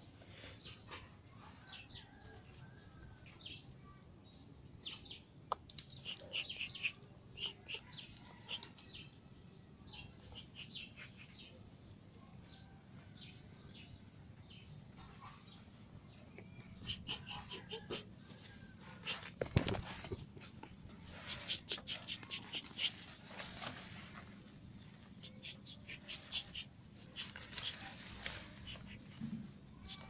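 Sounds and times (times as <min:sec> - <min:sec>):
birds chirping: 0:04.8 - 0:09.0, 0:10.0 - 0:11.6, 0:16.1 - 0:18.0, 0:20.0 - 0:23.2, 0:25.0 - 0:30.0.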